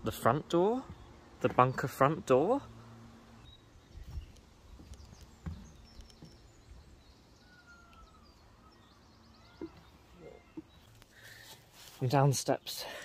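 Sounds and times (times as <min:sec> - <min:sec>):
bird chirps: 0:03.4 - 0:11.6
footsteps on wooden ladder: 0:04.0 - 0:06.4.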